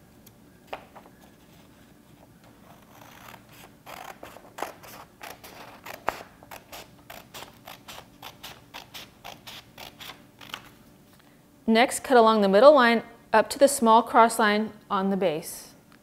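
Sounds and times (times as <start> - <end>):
scissors snipping paper: 2.6 - 10.7.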